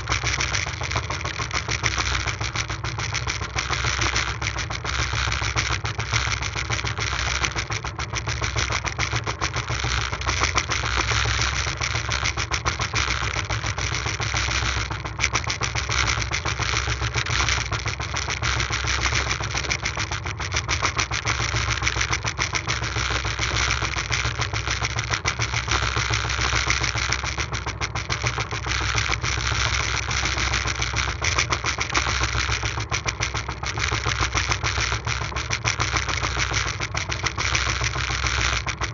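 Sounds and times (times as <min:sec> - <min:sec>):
boat engine chugging: 0:00.0 - 0:38.9.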